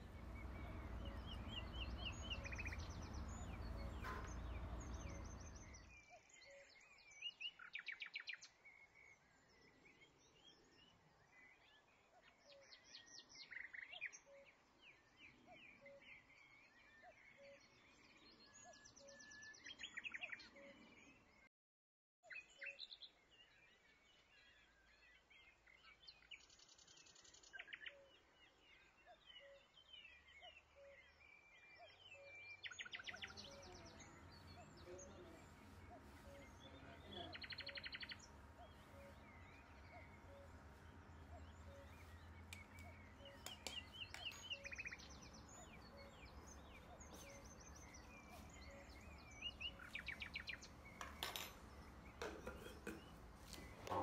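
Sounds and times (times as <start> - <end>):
birds chirping in rapid trills: 0.0 - 6.2, 31.0 - 54.0
faint background noise: 0.0 - 6.8, 32.0 - 54.0.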